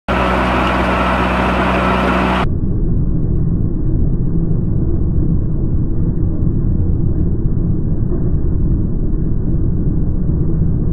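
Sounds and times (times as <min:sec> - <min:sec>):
drilling rig engine hum: 0:00.1 - 0:02.5
dull muffled low rumble: 0:00.1 - 0:10.9.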